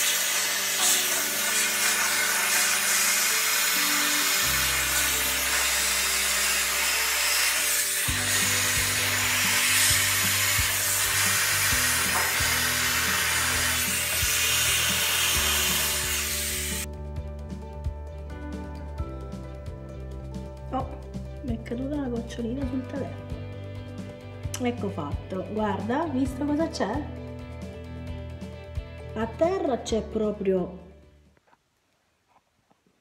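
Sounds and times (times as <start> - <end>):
steam cleaner hissing: 0.0 - 16.9
background music with bass line: 8.1 - 31.2.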